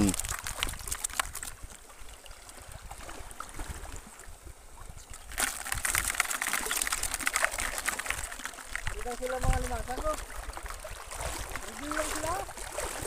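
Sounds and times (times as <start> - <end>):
small crackling clicks: 0.0 - 1.6
seawater sloshing and splashing: 0.0 - 13.0.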